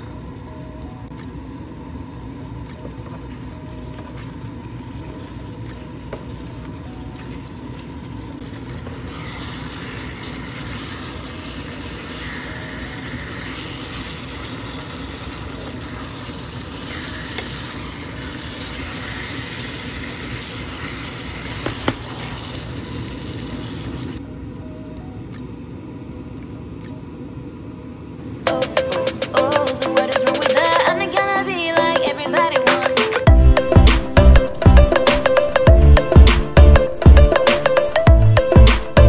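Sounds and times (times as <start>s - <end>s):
chicken sizzling in a frying pan: 8.6s - 24.2s.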